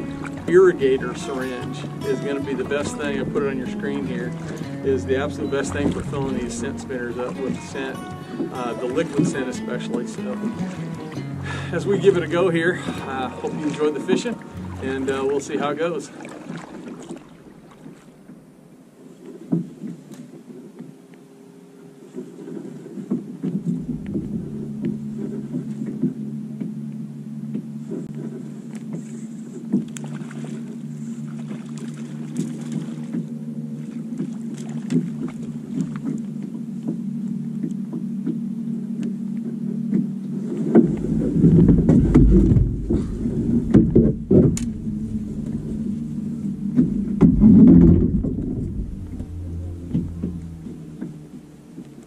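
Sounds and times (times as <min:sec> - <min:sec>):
heavy low rumbling: 0:00.0 - 0:19.0, 0:23.2 - 0:29.4, 0:32.9 - 0:52.0
boat motor humming: 0:00.0 - 0:52.0
knocks: 0:46.7 - 0:51.2.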